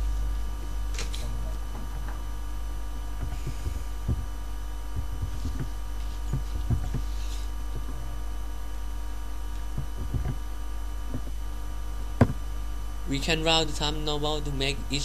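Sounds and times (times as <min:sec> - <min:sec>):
low electrical hum: 0:00.0 - 0:15.0
low thumps: 0:01.6 - 0:08.1, 0:09.6 - 0:12.6.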